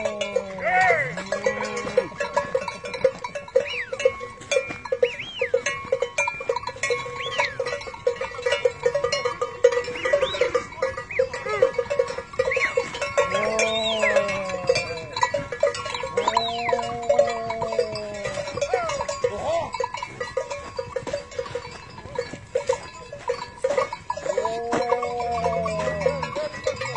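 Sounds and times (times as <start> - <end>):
cattle mooing: 0.0 - 2.2, 12.6 - 18.7, 24.2 - 26.9
cowbells clanking: 0.0 - 26.9.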